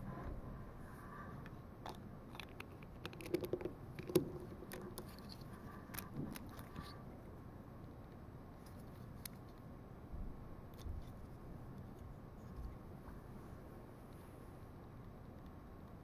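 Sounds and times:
plastic bricks clicking: 1.9 - 6.7.

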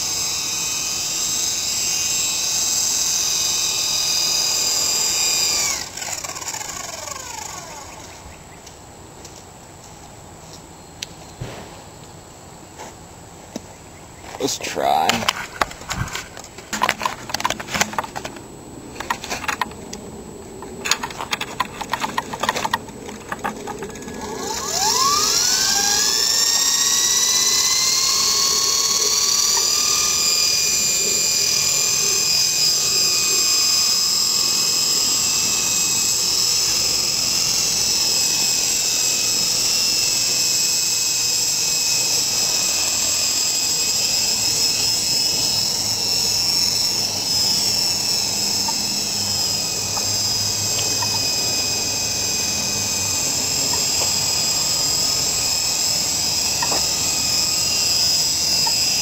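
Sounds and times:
rc helicopter motor whine: 0.0 - 8.6, 14.3 - 59.0.

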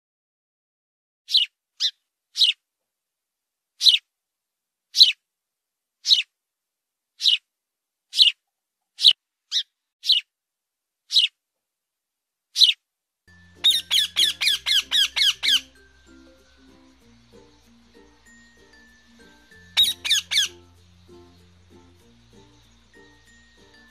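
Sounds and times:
parakeet squawks: 1.3 - 2.6, 3.8 - 4.0, 5.0 - 5.2, 6.0 - 6.3, 7.2 - 7.4, 8.1 - 8.4, 9.0 - 10.3, 11.1 - 11.4, 12.6 - 12.8, 13.6 - 15.9, 19.7 - 20.7
sparrow chirping: 1.3 - 2.6, 3.8 - 4.0, 4.9 - 5.2, 6.0 - 6.3, 7.2 - 7.4, 8.1 - 8.4, 9.0 - 10.3, 11.1 - 11.3, 12.6 - 23.9.

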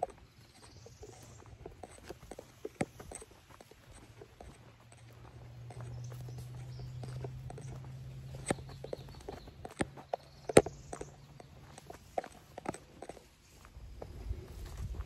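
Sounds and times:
footsteps: 0.0 - 15.0
steady low hum: 0.0 - 15.0
sharp knocks and snaps: 1.6 - 13.2.

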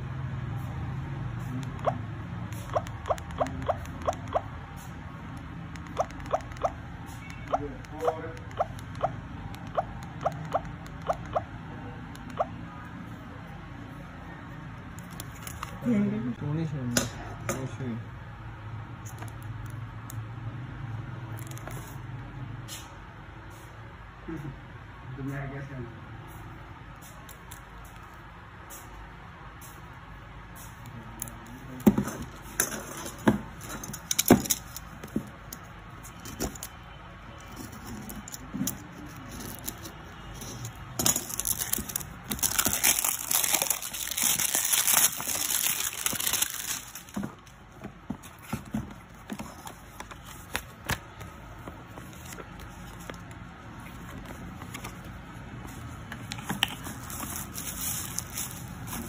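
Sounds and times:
plastic wrap crinkling: 41.0 - 47.3, 56.6 - 59.0.

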